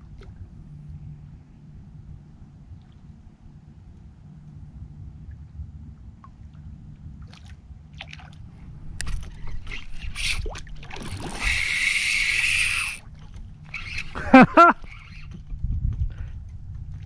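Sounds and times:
fishing reel whirring: 9.0s - 13.0s, 13.6s - 15.4s
fish splashing in water: 9.3s - 14.2s.

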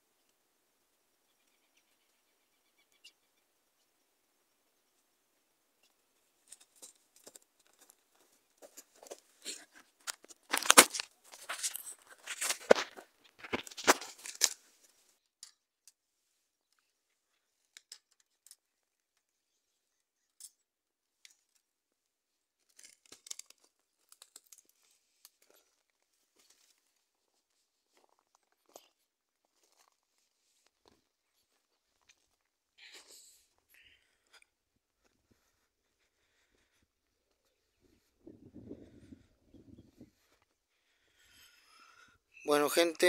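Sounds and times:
rustling and crinkling handling noise: 6.4s - 15.2s, 22.5s - 38.3s.

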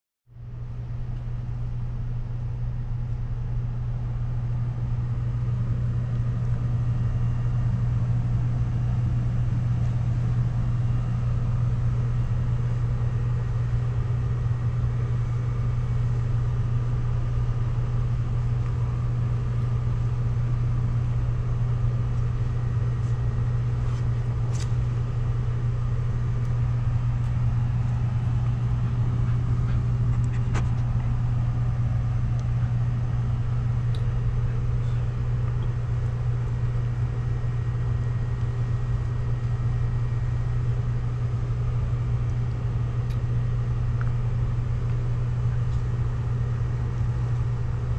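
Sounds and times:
machine low mechanical drone: 0.3s - 47.9s.

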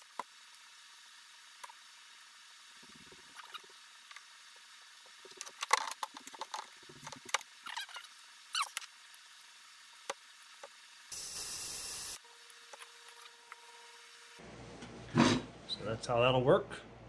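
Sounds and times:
short squeaks: 7.6s - 8.8s
compressed air hiss: 11.1s - 12.2s.

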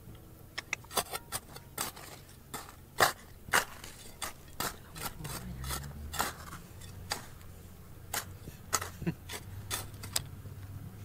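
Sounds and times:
metal tool striking stone: 0.9s - 7.4s, 8.1s - 10.2s.

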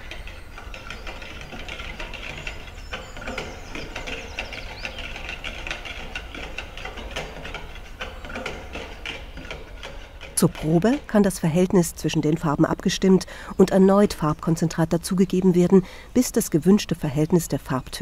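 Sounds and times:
wire whisk clicking against bucket: 0.0s - 15.8s
low steady hum: 0.0s - 18.0s.

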